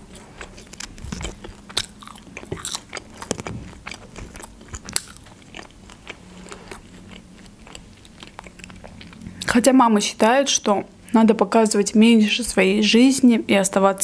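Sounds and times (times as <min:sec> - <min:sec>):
faint steady hum: 0:00.0 - 0:14.0
soft crunching: 0:00.1 - 0:09.5
wet chewing and mouth clicks: 0:00.1 - 0:09.6.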